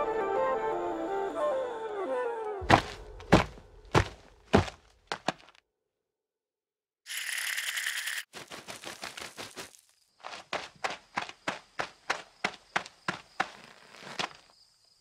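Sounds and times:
flute note gliding downward: 0.0s - 3.3s
heavy landing thuds: 2.6s - 5.4s.

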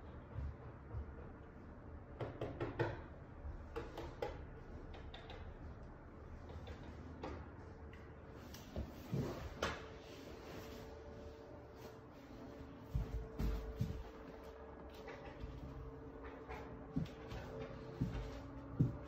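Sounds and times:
roller shade motor hum: 4.5s - 19.0s.

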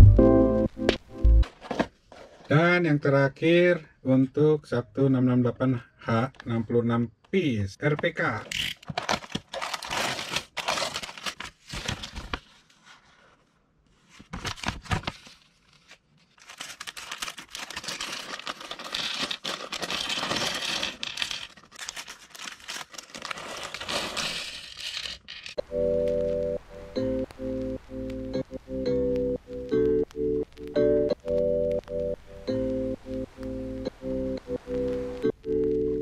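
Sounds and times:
plastic bag crinkling: 8.9s - 12.4s, 16.3s - 25.6s
cardboard box tearing: 9.0s - 12.1s, 16.4s - 25.5s.

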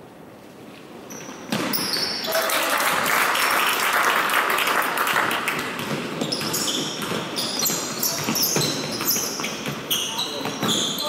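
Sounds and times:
sneakers squeaking on court: 1.1s - 2.4s, 5.6s - 11.0s
basketball bouncing: 5.5s - 10.9s.

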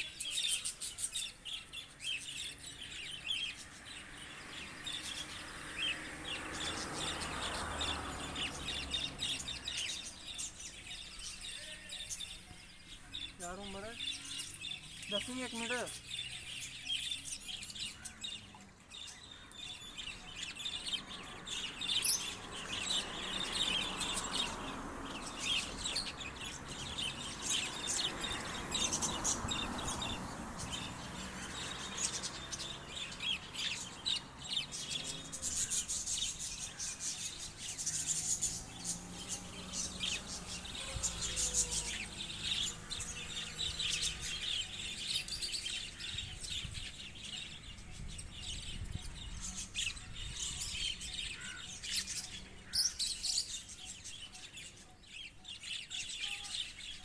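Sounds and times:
budgerigars chattering: 4.6s - 57.0s.

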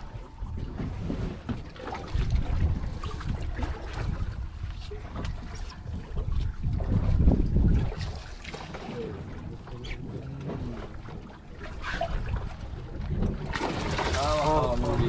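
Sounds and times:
wind on microphone: 0.0s - 15.0s
water rushing: 7.2s - 15.0s.

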